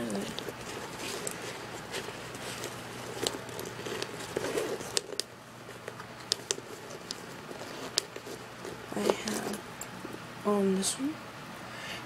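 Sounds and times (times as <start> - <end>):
rummaging through handbag: 0.0 - 9.6.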